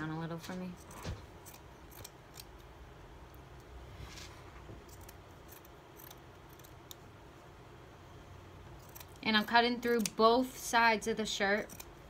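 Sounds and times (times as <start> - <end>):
scissors cutting fabric: 0.8 - 2.7, 4.8 - 7.0, 8.8 - 10.4, 11.4 - 12.0.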